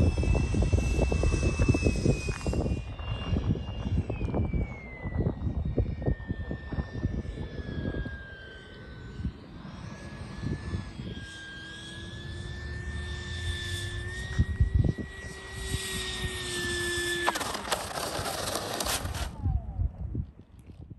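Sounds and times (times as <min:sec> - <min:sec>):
electric ducted fan whine: 0:00.0 - 0:20.9.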